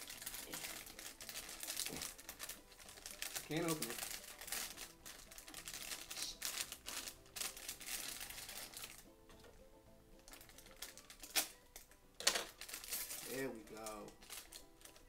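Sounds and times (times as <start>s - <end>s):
plastic wrapper crinkling: 0.0s - 9.1s, 10.2s - 15.0s
faint music: 0.0s - 15.0s
sharp plastic crack: 10.3s - 15.0s.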